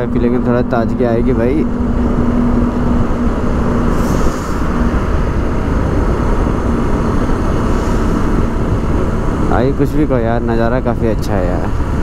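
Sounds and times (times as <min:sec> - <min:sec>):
wind rush on microphone: 0:00.0 - 0:12.0.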